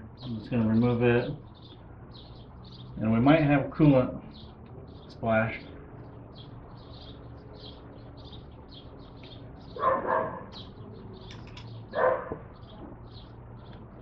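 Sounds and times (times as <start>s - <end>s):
small birds chirping: 0.0s - 14.0s
dog barking: 9.8s - 10.6s, 11.9s - 12.5s.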